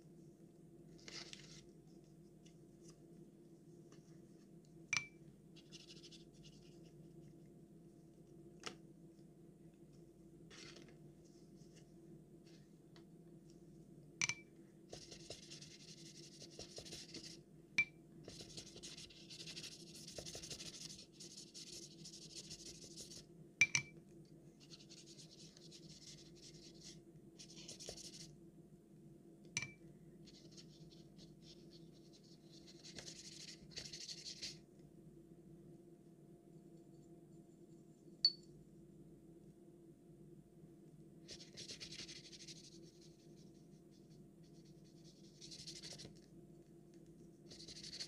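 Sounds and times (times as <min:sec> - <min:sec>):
faint steady hum: 0:00.0 - 0:48.0
pen nib scratching on paper: 0:14.9 - 0:17.4, 0:18.3 - 0:23.2, 0:47.5 - 0:48.0.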